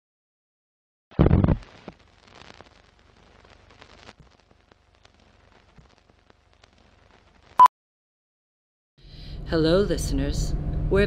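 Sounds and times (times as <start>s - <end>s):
faint film crackles and pops: 1.1s - 7.7s.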